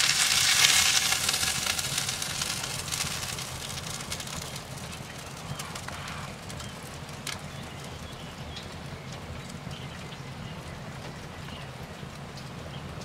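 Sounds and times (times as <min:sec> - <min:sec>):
wood fire crackling: 0:00.0 - 0:13.0.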